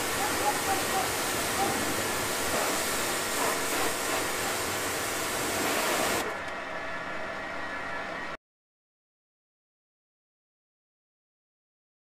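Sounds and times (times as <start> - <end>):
pressure washer spray hissing: 0.0 - 6.3.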